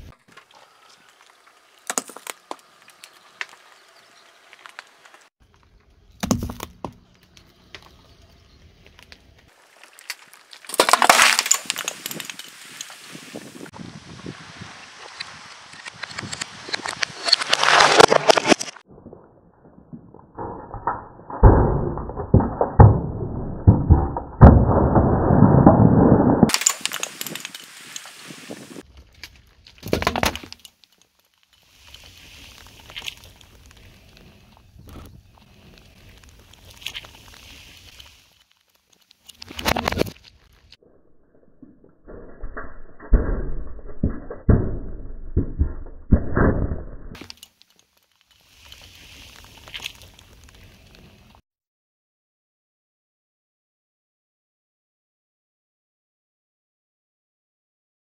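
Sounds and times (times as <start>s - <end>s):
can crunching and crumpling: 9.7s - 12.9s, 16.2s - 18.8s
tyre crushing drink can: 10.1s - 12.4s.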